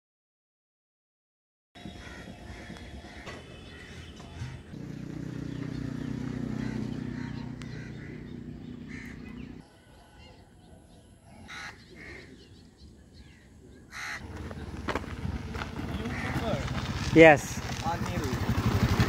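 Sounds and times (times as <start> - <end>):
steady low hum: 1.8 - 9.6
short calls: 2.7 - 9.6.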